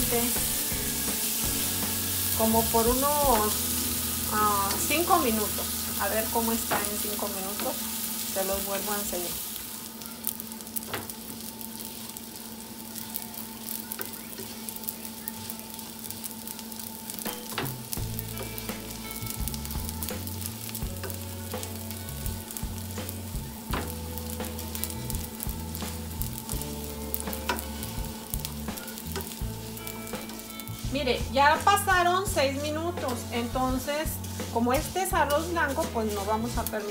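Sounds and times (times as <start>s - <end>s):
rice sizzling in butter: 0.0s - 36.9s
wooden spoon scraping a pan: 30.2s - 36.9s.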